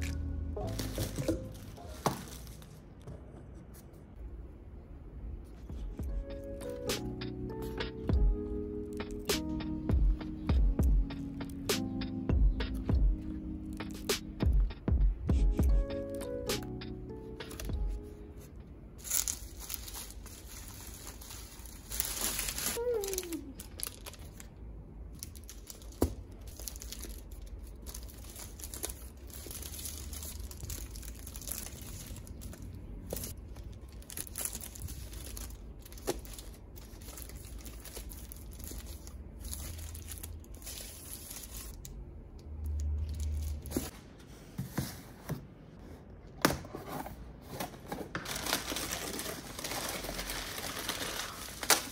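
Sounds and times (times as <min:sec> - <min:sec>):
plastic packaging crinkling: 0:00.0 - 0:03.0, 0:19.0 - 0:42.0, 0:48.2 - 0:51.9.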